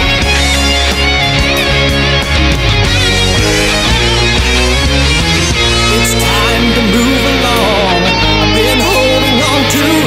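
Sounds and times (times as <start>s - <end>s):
hard rock band playing: 0.0s - 10.0s.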